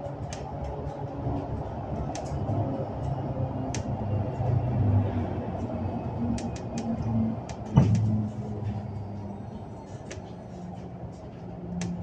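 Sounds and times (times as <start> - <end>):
electric bus humming: 0.0 - 12.0
sharp clicks: 6.3 - 8.1.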